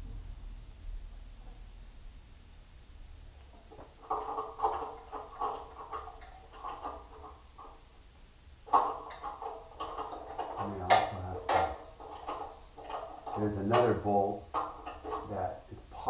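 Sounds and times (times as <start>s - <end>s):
wrench clicking on metal bolt: 8.7s - 15.3s.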